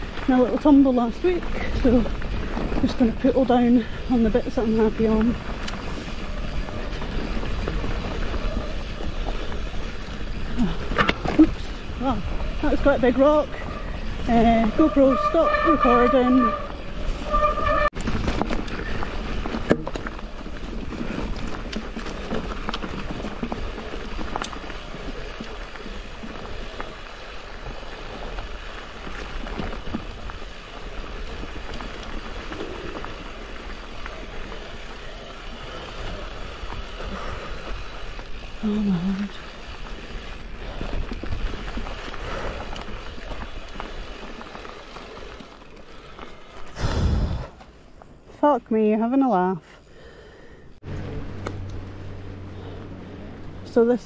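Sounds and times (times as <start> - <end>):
bike clicks and rattles: 0.0 - 46.8, 50.9 - 54.0
bike tyres rolling over dirt: 0.0 - 54.0
bike knocks and rattles: 12.6 - 33.2.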